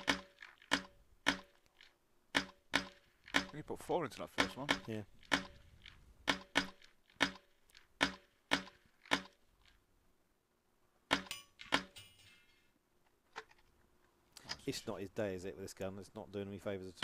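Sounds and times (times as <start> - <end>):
rifle shots: 0.0 - 1.6, 2.4 - 3.6, 6.2 - 9.4.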